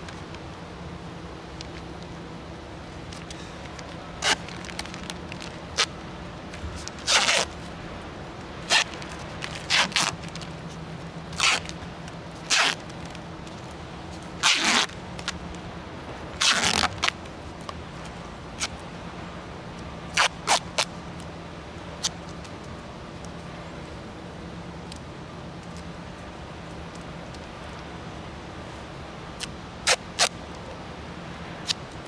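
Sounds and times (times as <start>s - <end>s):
duct tape ripping off roll: 4.2s - 5.9s, 6.8s - 7.6s, 8.7s - 10.5s, 11.4s - 11.8s, 12.4s - 13.2s, 14.4s - 15.4s, 16.4s - 17.2s, 20.2s - 20.9s, 29.4s - 30.4s.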